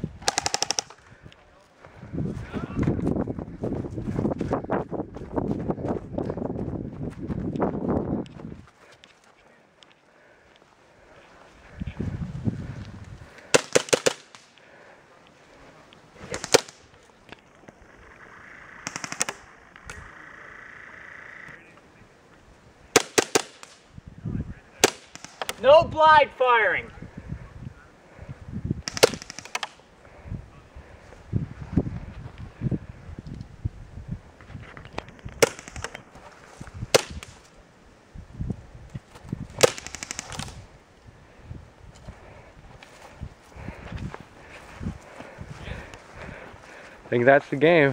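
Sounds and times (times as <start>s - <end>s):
airsoft gun bursts: 0.2s - 1.0s, 13.5s - 14.5s, 18.5s - 20.0s, 22.9s - 23.8s, 28.8s - 29.8s, 35.4s - 36.0s, 39.6s - 40.6s.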